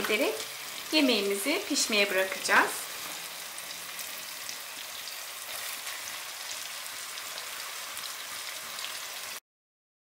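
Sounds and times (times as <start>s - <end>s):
sauce sizzling in a pot: 0.0s - 9.4s.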